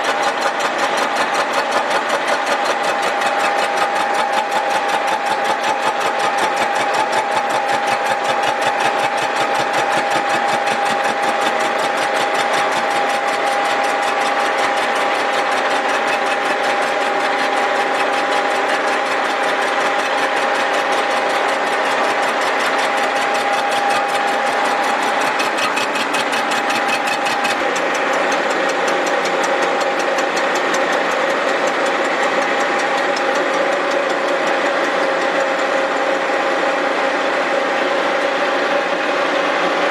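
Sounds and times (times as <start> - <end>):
milling cutter clatter: 0.0 - 37.0
milling machine hum: 0.0 - 39.9.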